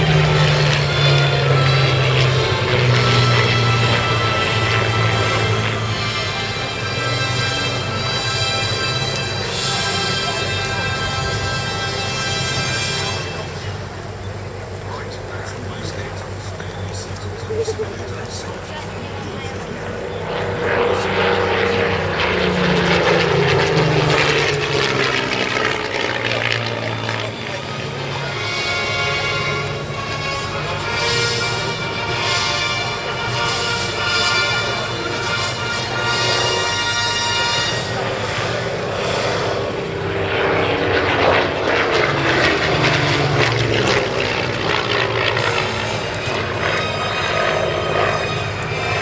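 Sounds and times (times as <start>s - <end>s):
aircraft engine droning overhead: 0.0s - 49.0s
propeller plane flying past: 0.0s - 49.0s.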